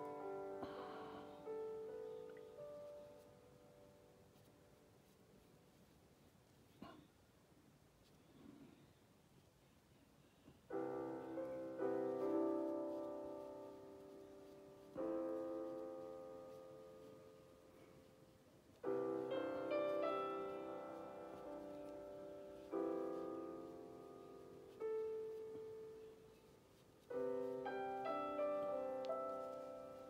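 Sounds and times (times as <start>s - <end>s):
slow piano chords: 0.0s - 5.5s, 10.6s - 30.0s.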